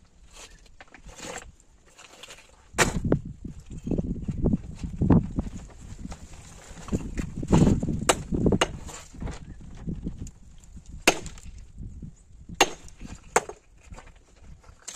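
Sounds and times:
sledgehammer striking stone: 2.8s - 3.1s, 7.6s - 8.9s, 11.0s - 11.5s, 12.6s - 13.6s.

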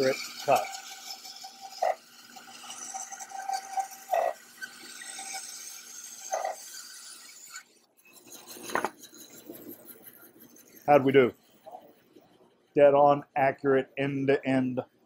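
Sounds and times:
bandsaw cutting wood: 0.0s - 12.2s.

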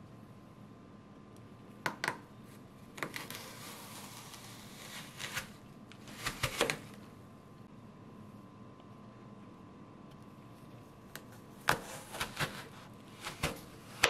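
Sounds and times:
blades crunching through apple: 2.9s - 7.0s, 11.2s - 14.0s.

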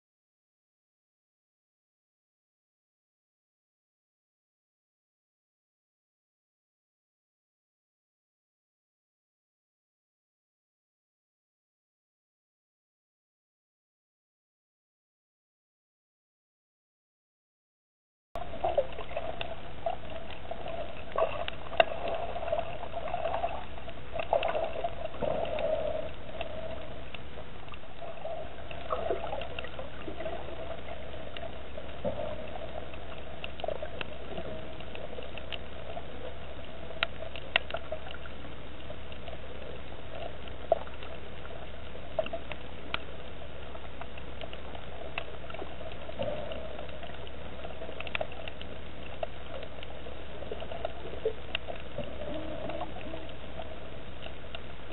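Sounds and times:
low hum: 18.4s - 54.9s
underwater water wash: 18.4s - 54.9s.

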